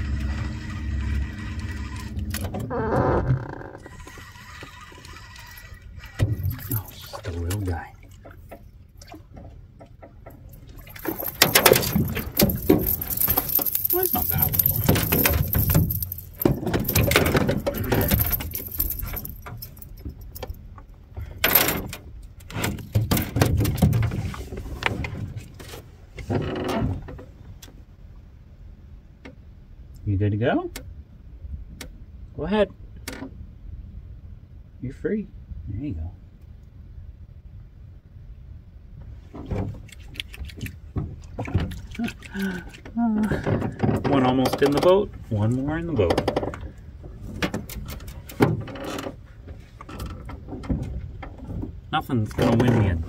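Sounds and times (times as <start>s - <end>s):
low rumble: 0.0s - 3.9s
clicks and knocks of fish handling: 6.1s - 27.8s, 39.3s - 45.0s, 46.0s - 52.9s.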